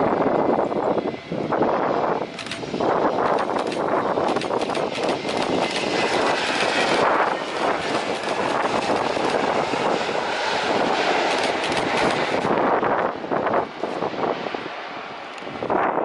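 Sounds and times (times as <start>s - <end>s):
jet engines rushing: 0.0s - 16.0s
wind buffeting microphone: 0.0s - 16.0s.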